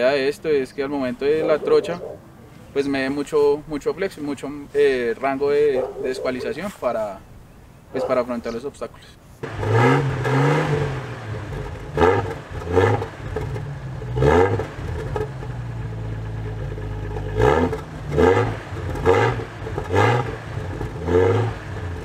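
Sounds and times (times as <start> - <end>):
car engine idling and revving: 9.4 - 22.0.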